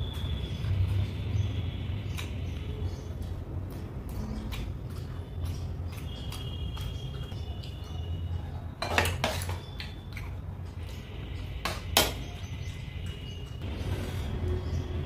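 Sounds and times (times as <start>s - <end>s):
metal spoon clinking on bowls: 7.0s - 10.4s.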